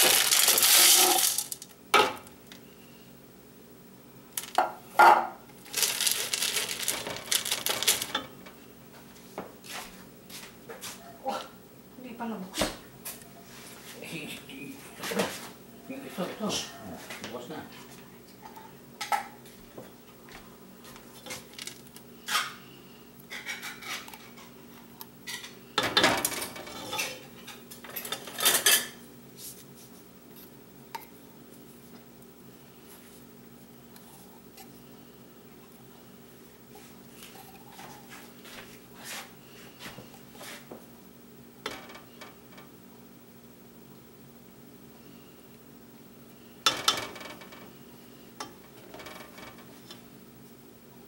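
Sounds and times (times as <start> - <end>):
spatula scraping pot: 23.3 - 24.6.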